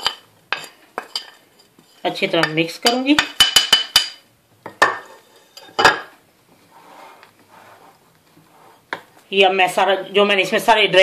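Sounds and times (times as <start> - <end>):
faint scraping in bowl: 6.6 - 8.9.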